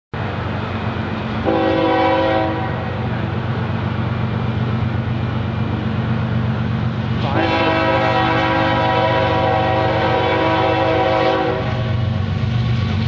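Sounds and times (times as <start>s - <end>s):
low rumble of train: 0.1s - 13.0s
locomotive air horn: 1.4s - 3.0s, 7.2s - 12.1s.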